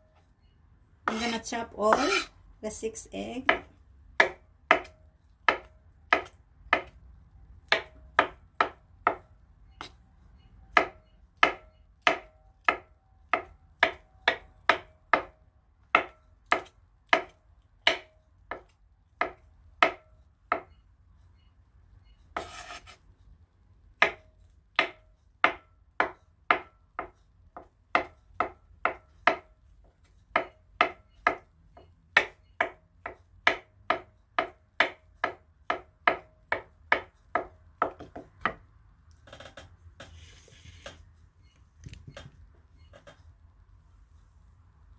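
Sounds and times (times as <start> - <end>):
knife chopping on wooden board: 1.0 - 2.3, 3.4 - 7.0, 7.6 - 10.0, 10.8 - 20.7, 24.0 - 29.5, 30.3 - 38.6
knife scraping board: 1.1 - 2.3, 22.4 - 23.1, 40.0 - 41.0.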